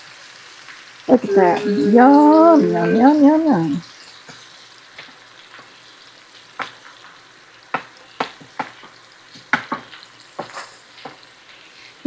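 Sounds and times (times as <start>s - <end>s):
onions sizzling in a skillet: 0.0s - 12.0s.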